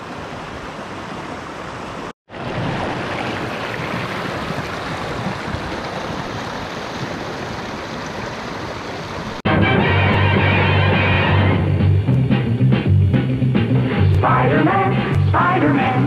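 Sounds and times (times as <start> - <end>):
creek rushing over rocks: 0.0 - 9.4.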